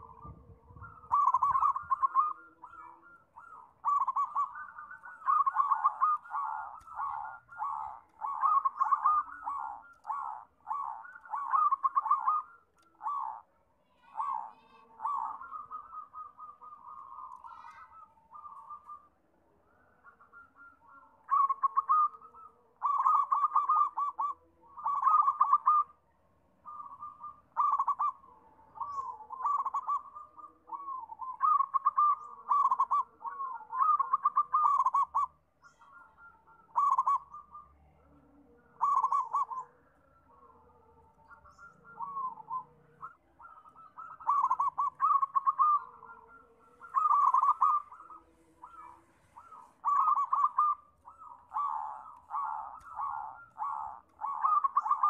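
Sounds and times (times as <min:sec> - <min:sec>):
dove cooing trills: 0:00.0 - 0:55.0.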